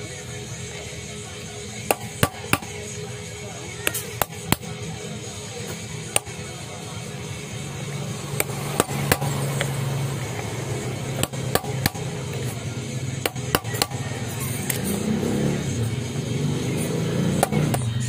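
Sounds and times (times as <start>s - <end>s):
music: 0.0s - 18.0s
hammer striking metal punch: 1.9s - 2.8s, 3.8s - 4.8s, 6.1s - 6.4s, 8.3s - 9.7s, 11.2s - 12.5s, 13.2s - 14.8s, 17.4s - 18.0s.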